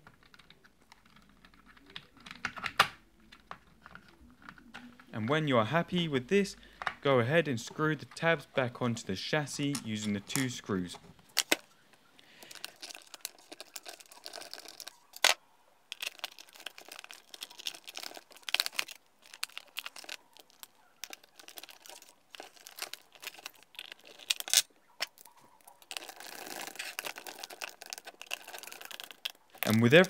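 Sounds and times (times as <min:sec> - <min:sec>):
metal tool scraping plastic: 0:12.4 - 0:30.0.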